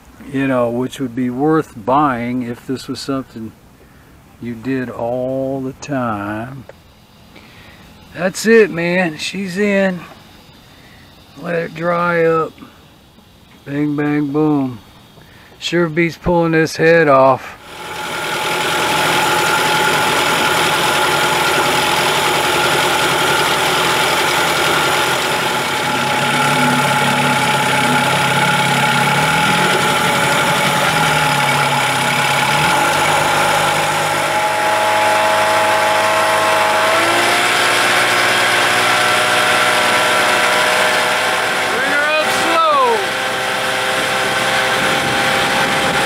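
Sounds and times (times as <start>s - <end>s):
outboard motor running: 17.6s - 46.0s.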